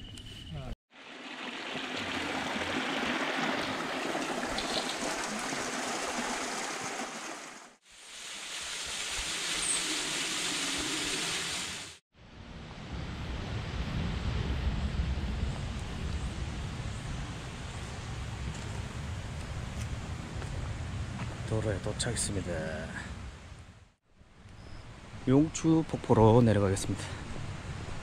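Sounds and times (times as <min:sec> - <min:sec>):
rushing stream water: 0:00.9 - 0:12.0.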